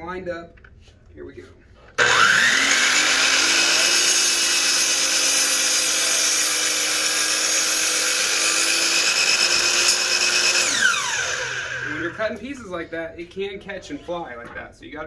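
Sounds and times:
miter saw whining: 0:02.0 - 0:12.2
saw blade cutting wood: 0:02.0 - 0:12.2.

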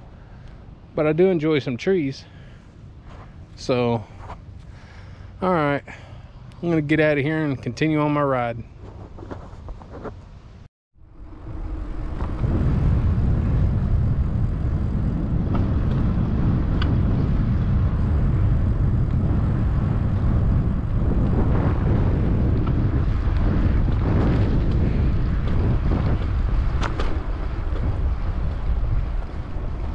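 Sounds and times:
wind buffeting microphone: 0:11.0 - 0:29.9.

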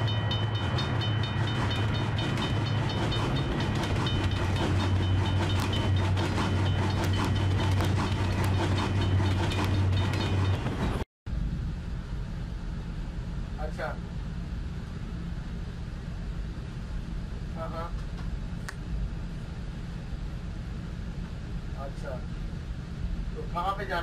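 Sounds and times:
high ringing: 0:00.0 - 0:11.0
wheels clacking over rail joints: 0:00.0 - 0:11.0
open-air background noise: 0:00.0 - 0:24.0
train rumble: 0:00.0 - 0:24.0.

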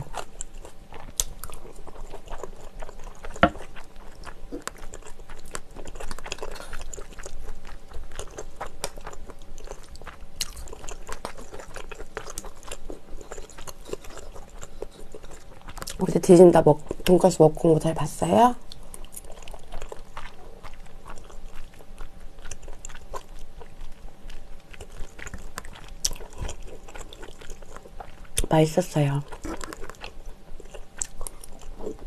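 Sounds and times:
chewing pasta: 0:00.0 - 0:32.0.

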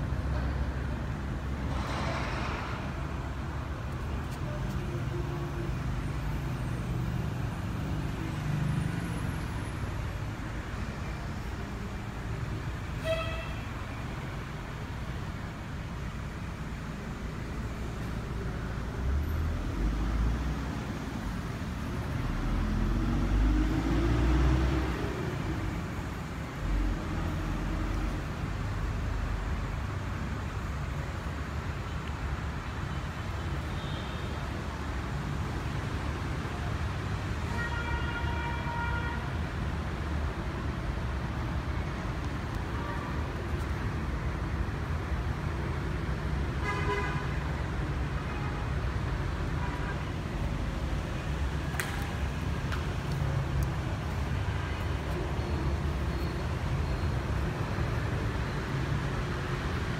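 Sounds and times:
car horn tooting: 0:13.0 - 0:13.7.

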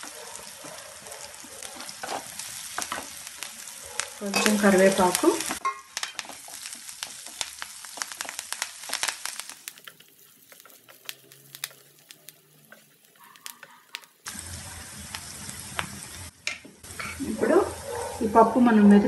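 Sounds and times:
sharp crackles and clicks: 0:00.0 - 0:17.2
spices sizzling in hot oil: 0:00.0 - 0:19.0
wooden spatula stirring: 0:09.7 - 0:14.1.

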